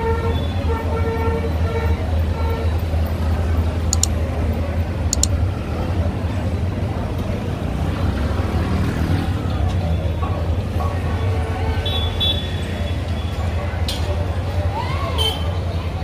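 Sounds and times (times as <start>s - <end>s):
engine rumble of traffic: 0.0s - 16.0s
sharp clicks: 3.9s - 4.2s, 5.1s - 5.4s.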